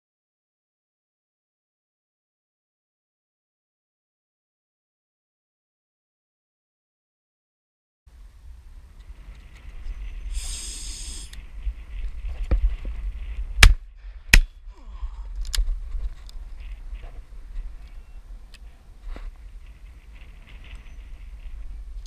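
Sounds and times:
wind buffeting microphone: 8.1 - 22.0.

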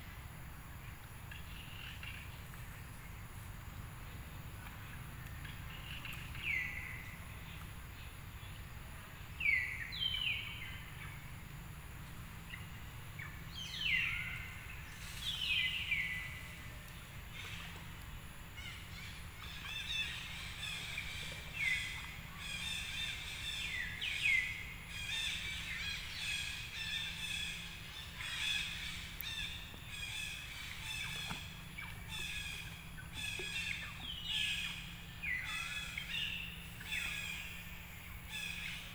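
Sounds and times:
low background rumble: 0.0 - 38.9
downward-sweeping bird calls: 18.5 - 38.9.

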